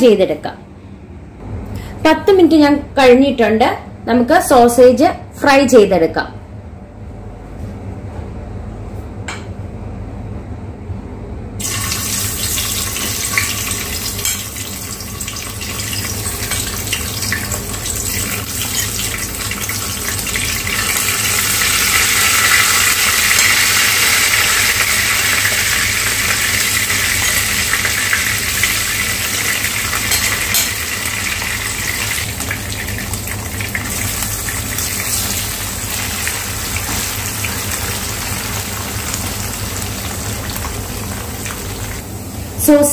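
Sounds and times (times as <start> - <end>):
sausage sizzling in frying pan: 11.6 - 42.0.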